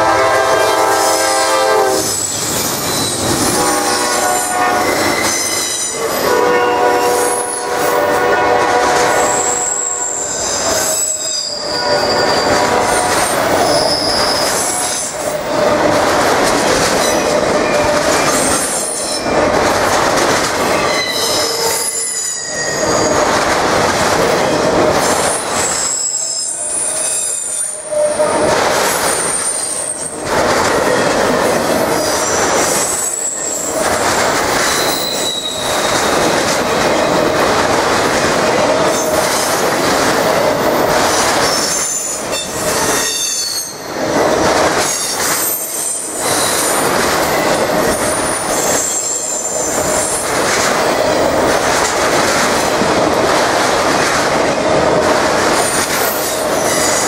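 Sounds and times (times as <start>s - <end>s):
train wheels rumbling on rails: 0.0s - 57.0s
high wheel squeals: 0.9s - 6.2s, 9.3s - 15.2s, 20.8s - 23.3s, 25.6s - 28.3s, 34.6s - 36.0s.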